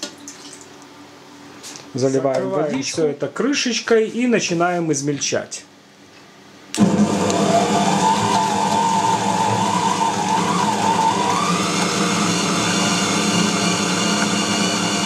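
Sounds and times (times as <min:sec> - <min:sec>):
bowl cutter motor hum and whine: 0:06.7 - 0:15.0.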